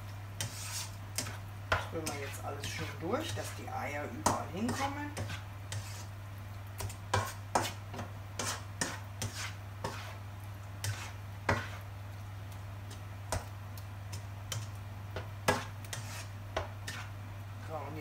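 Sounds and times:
spatula scraping a pan: 0.4 - 6.2, 6.8 - 11.9, 14.1 - 17.2.

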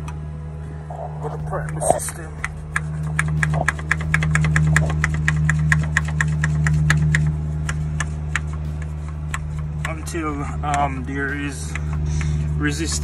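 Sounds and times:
steady low hum: 0.0 - 13.0
hand primer pump clicking: 2.4 - 10.0.

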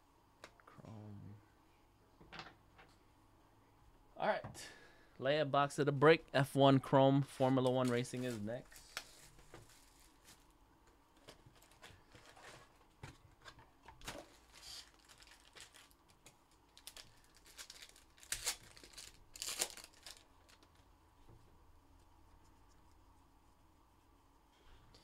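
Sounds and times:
cards and box rustling: 7.4 - 10.4, 11.2 - 15.9
foil wrapper crinkling and tearing: 14.0 - 20.8.

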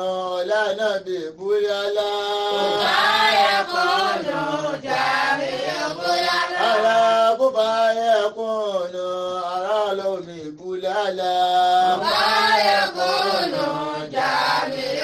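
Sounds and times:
man chanting: 0.0 - 3.0, 6.6 - 12.1.

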